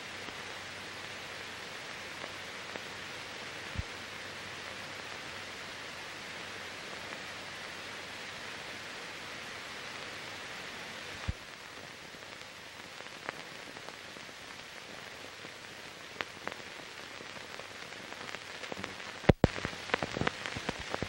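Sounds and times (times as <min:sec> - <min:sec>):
film surface hiss: 0:00.0 - 0:21.0
clicks and pops: 0:18.2 - 0:21.0.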